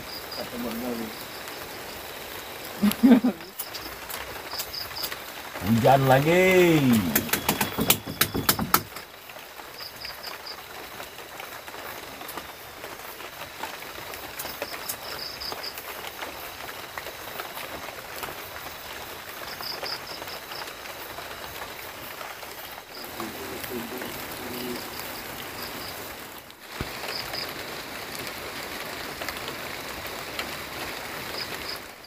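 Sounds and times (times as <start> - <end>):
rain on thatched roof: 0.0 - 32.0
sharp clicks: 6.8 - 9.1.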